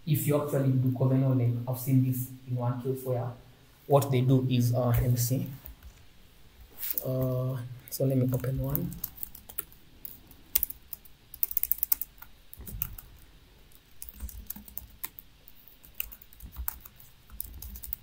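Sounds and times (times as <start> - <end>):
typing on laptop keyboard: 8.3 - 18.0.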